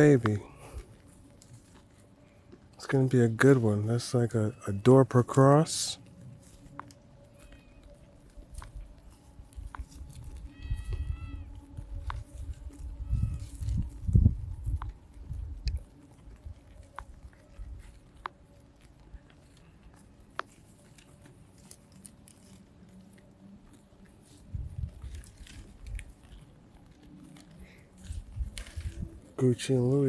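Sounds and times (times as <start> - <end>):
sheep crunching grass: 0.0 - 30.0
low rumbles: 6.0 - 30.0.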